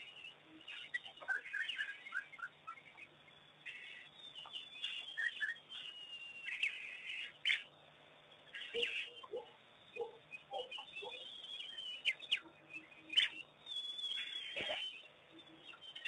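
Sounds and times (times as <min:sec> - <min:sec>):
animal chirps and whistles: 0:03.7 - 0:07.7, 0:08.6 - 0:16.0.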